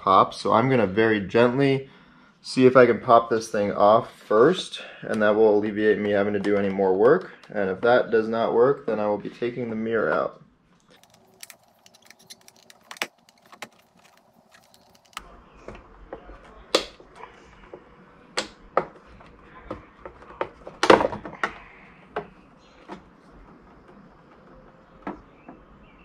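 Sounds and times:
plastic clatter: 10.9 - 15.2
plastic tools clicking on plastic: 10.9 - 15.2.

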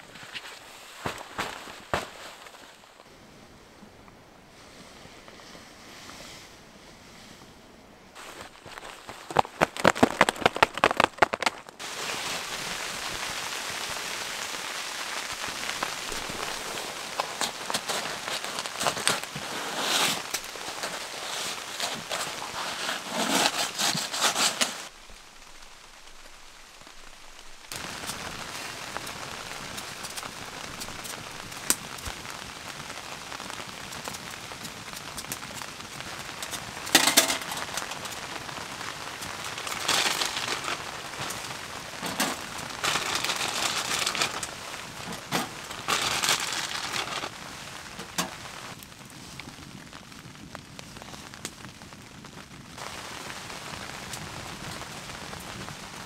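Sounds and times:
wood fire crackling: 0.0 - 3.1, 8.1 - 56.0
hand brushing snow off stove: 16.1 - 24.9.

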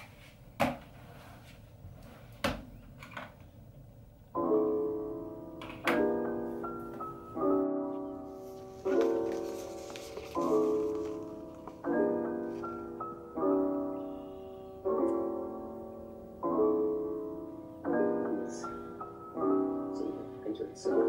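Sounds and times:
piano music with slow chords: 0.0 - 21.0.

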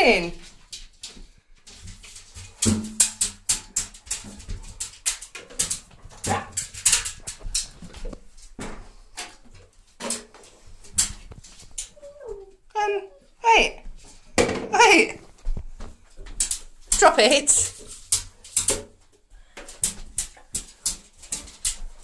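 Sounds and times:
dog whining: 11.9 - 13.3.

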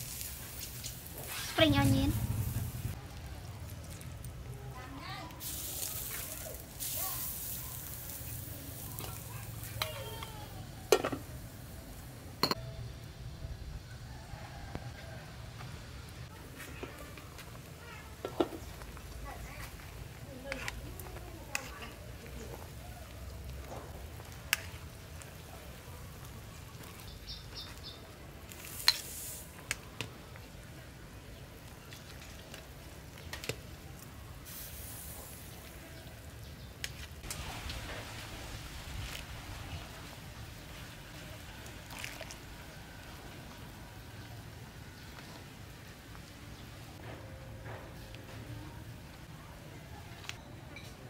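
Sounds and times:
steady hiss: 0.0 - 3.0, 34.4 - 35.9.

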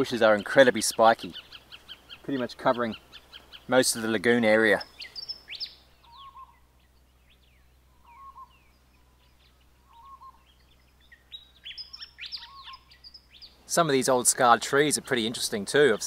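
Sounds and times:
birds chirping: 0.0 - 16.0
low bird note: 4.8 - 13.1.

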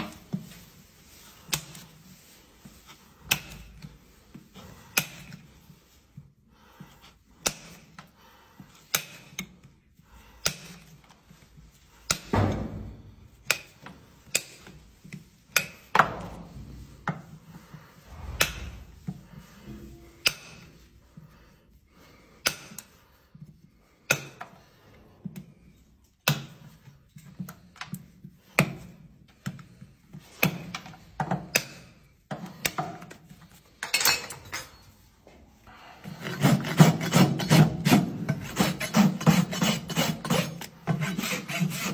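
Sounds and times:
metal tools tapping hoof nails: 33.8 - 34.9
rasp scraping hoof: 36.0 - 41.9.

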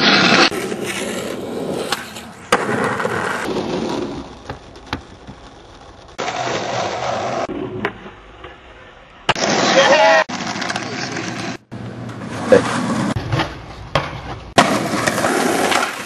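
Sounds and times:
skateboard wheels rolling on asphalt: 0.0 - 16.0.

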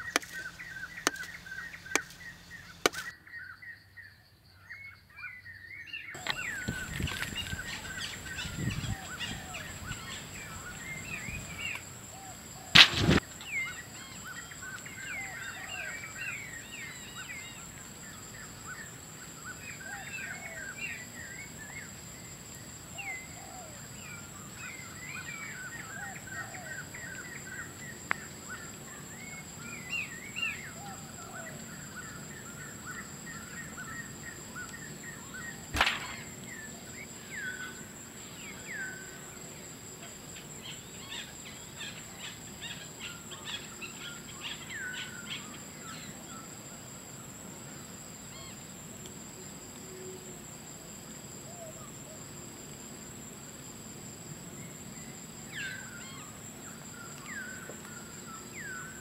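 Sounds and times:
high-pitched insect whine: 0.0 - 4.5, 6.1 - 59.0
birds chirping: 0.0 - 22.0, 23.0 - 39.7
sharp knock: 35.8 - 36.3.

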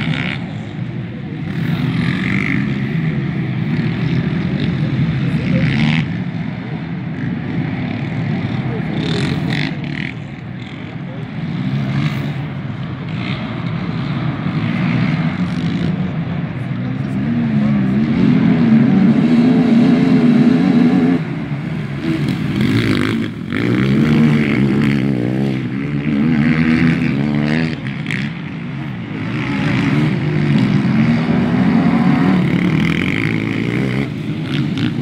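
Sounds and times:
quad engines revving: 0.0 - 35.0.

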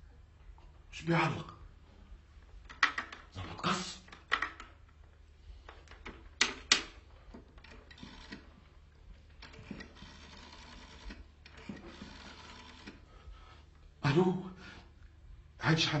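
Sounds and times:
rotary dial clicking and whirring: 4.0 - 13.1.

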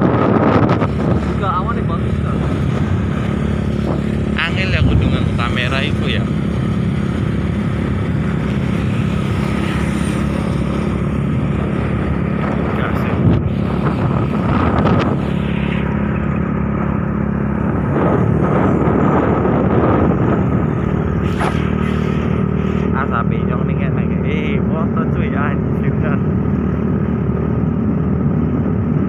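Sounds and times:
passing traffic: 0.0 - 29.0
scooter engine running: 0.1 - 23.0.

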